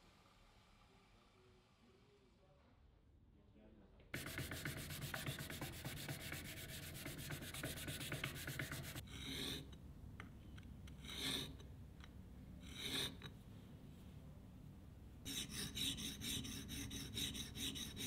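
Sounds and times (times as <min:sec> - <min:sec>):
abrasive paper rubbing on steel: 0:04.2 - 0:09.0
bit strokes on sharpening plate: 0:11.0 - 0:11.6, 0:12.6 - 0:13.3, 0:15.3 - 0:18.0.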